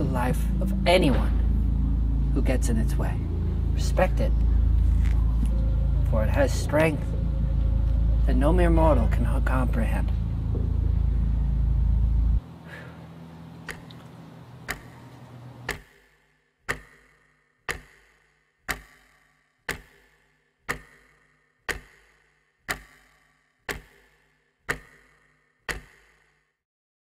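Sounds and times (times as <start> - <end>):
clock ticking: 13.6 - 26.4.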